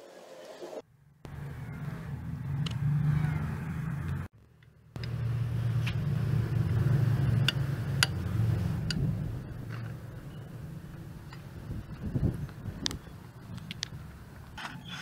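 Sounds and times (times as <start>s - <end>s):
low mechanical rumble: 3.5s - 14.6s.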